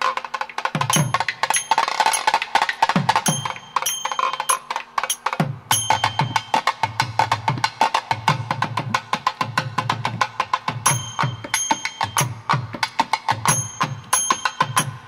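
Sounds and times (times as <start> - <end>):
fast sharp drum strokes: 0.0 - 15.0
small bell ringing: 0.9 - 7.0, 10.9 - 12.6, 13.4 - 15.0.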